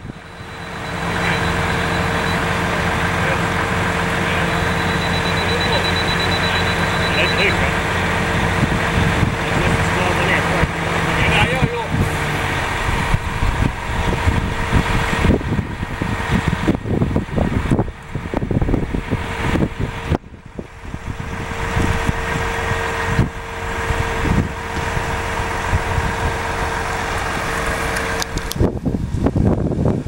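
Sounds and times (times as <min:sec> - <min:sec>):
concrete pump engine running: 0:00.0 - 0:30.0
constant mechanical whine: 0:00.0 - 0:30.0
wind buffeting microphone: 0:07.9 - 0:30.0.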